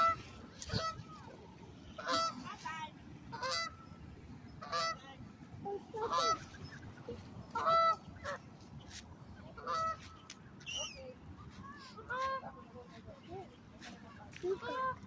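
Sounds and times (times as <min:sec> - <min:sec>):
geese honking: 0:00.0 - 0:01.1, 0:01.9 - 0:02.6, 0:03.3 - 0:03.9, 0:04.6 - 0:05.0, 0:05.9 - 0:08.4, 0:09.5 - 0:10.2.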